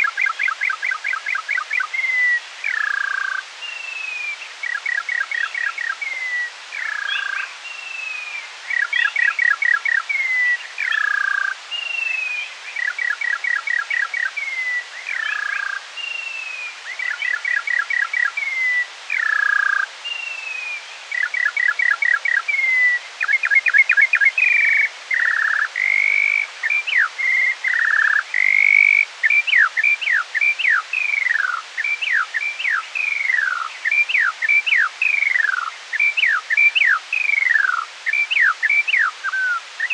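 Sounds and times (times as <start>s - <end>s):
slowed skylark song: 0.0s - 39.9s.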